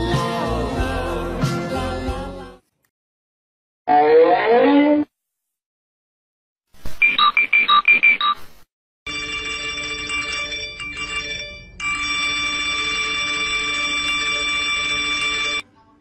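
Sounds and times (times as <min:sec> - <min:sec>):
short electronic beeps: 0:07.0 - 0:08.4.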